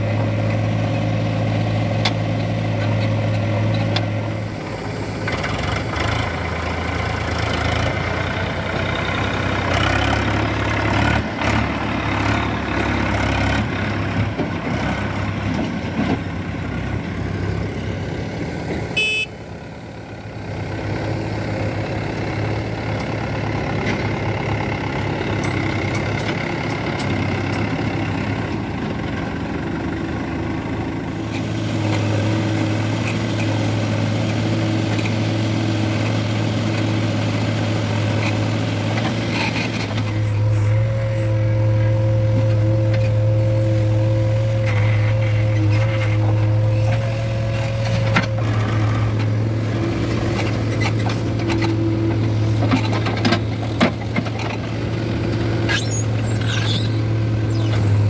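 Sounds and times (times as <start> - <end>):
backhoe loader engine humming: 0.0 - 58.0
diesel tractor engines running: 0.0 - 58.0
brief high-pitched squeal: 55.7 - 58.0.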